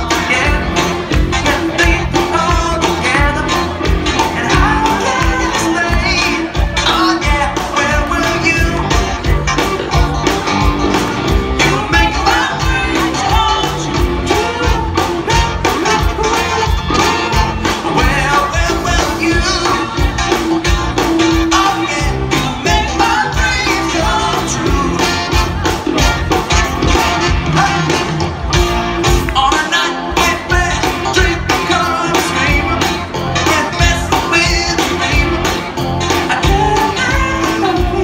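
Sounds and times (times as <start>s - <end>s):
person singing: 0.0s - 25.7s, 29.1s - 38.0s
live band playing: 0.0s - 38.0s.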